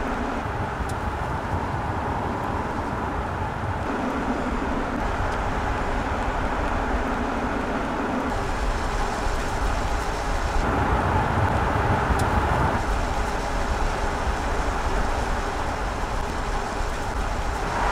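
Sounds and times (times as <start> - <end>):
tyre and wind noise: 0.0 - 17.9.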